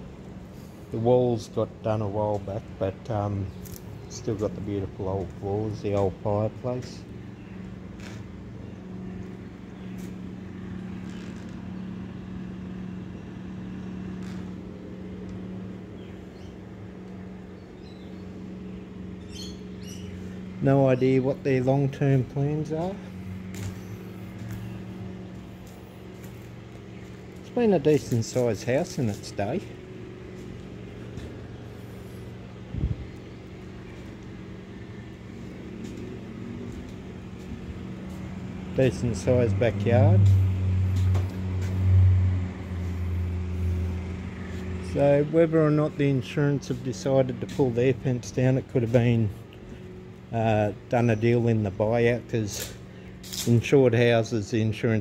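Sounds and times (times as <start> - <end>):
low motor hum: 0.0 - 55.0
faint high bird chirps: 19.2 - 20.4.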